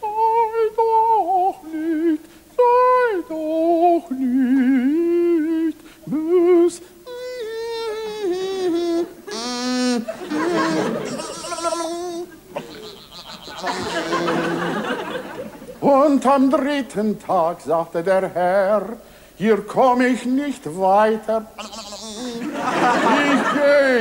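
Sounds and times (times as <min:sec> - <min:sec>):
man singing falsetto: 0:00.0 - 0:14.6, 0:21.5 - 0:23.2.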